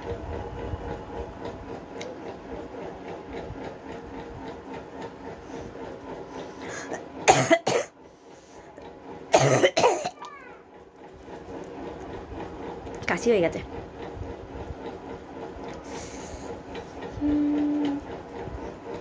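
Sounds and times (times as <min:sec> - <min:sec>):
low background hum: 0:00.0 - 0:19.0
woman coughing: 0:07.3 - 0:07.9, 0:09.3 - 0:10.2.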